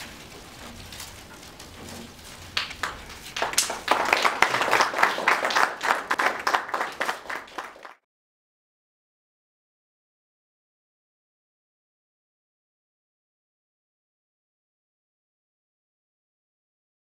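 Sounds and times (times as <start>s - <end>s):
audience applauding: 2.5s - 8.0s.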